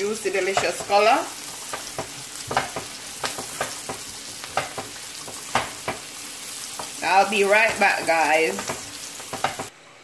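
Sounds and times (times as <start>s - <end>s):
food sizzling in a frying pan: 0.0s - 9.7s
spatula tapping and scraping pan: 0.4s - 9.7s.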